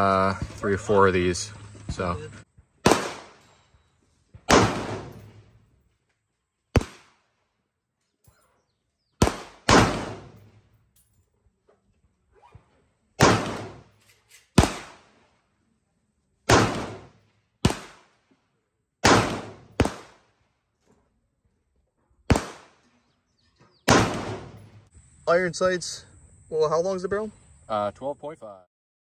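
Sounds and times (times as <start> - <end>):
rifle gunshots with echo: 2.8 - 3.4, 4.4 - 5.6, 6.7 - 7.2, 9.2 - 10.6, 13.2 - 13.9, 14.6 - 15.2, 16.5 - 18.2, 19.0 - 20.3, 22.3 - 22.8, 23.9 - 24.8.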